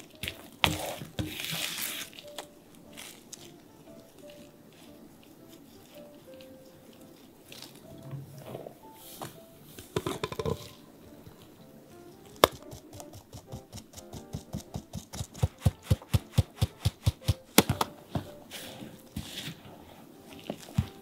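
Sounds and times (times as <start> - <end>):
flour pouring rustle: 0.0 - 9.8, 18.3 - 21.0
hand tapping metal sieve: 9.9 - 10.8, 12.4 - 17.9.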